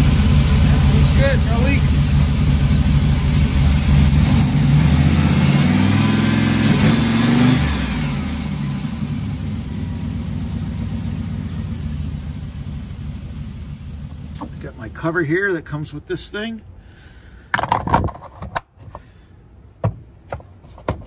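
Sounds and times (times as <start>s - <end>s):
engine running and revving: 0.0s - 14.5s.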